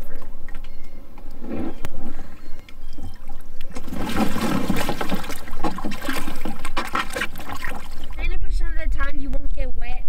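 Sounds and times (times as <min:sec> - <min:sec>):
water pouring and splashing: 0:02.8 - 0:08.2.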